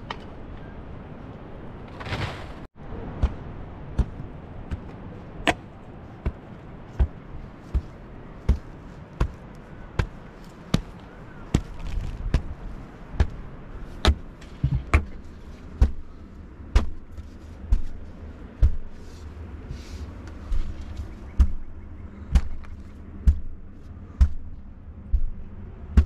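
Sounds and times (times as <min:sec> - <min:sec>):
hand tool pounding stones: 0:03.2 - 0:05.6, 0:07.0 - 0:09.4, 0:13.2 - 0:13.4, 0:14.0 - 0:18.0, 0:18.6 - 0:18.9, 0:21.4 - 0:21.7, 0:22.3 - 0:23.6.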